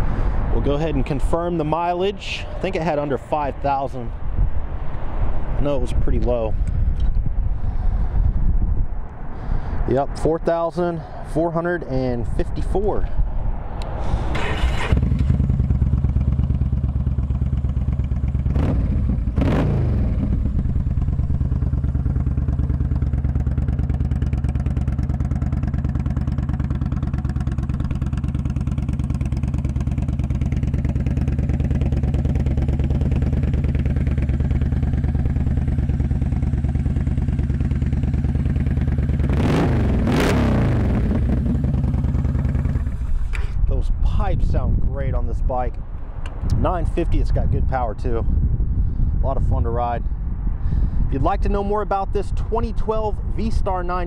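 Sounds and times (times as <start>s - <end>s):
motorcycle engine idling and revving: 14.2s - 43.4s.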